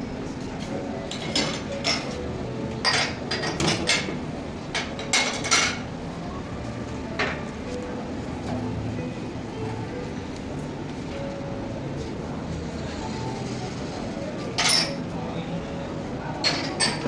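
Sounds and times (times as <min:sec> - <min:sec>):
restaurant background hum: 0:00.0 - 0:17.0
dishes and cutlery clinking: 0:01.1 - 0:05.9, 0:14.4 - 0:15.1, 0:16.4 - 0:17.0.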